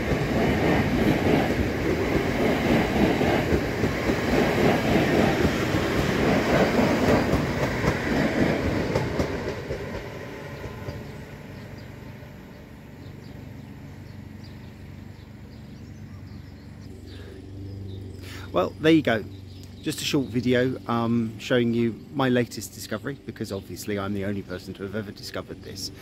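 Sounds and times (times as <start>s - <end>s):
electric train passing: 0.0s - 26.0s.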